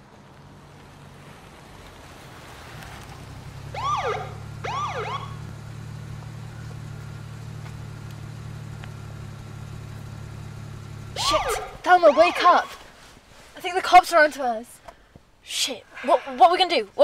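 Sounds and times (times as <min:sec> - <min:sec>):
low engine hum: 0:00.0 - 0:13.6
police siren whoops: 0:03.7 - 0:05.4, 0:11.2 - 0:12.8.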